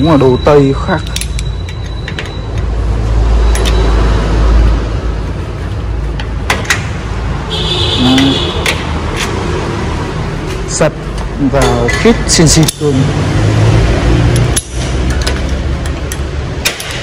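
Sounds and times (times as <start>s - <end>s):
sharp metallic clicks and knocks: 0.8s - 2.8s, 3.4s - 4.0s, 6.1s - 7.1s, 8.1s - 9.4s, 11.1s - 13.0s, 14.2s - 17.0s.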